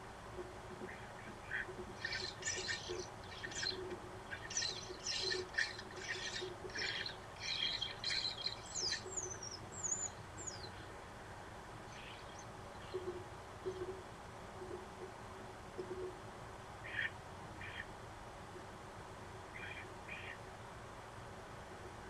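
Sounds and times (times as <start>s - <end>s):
starlings chattering: 0.8s - 10.9s.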